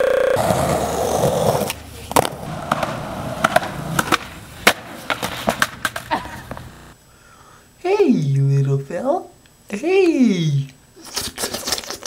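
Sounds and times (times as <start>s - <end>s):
skateboard wheels rolling on concrete: 0.3s - 7.0s
skateboard clacks and cracks: 0.4s - 6.7s.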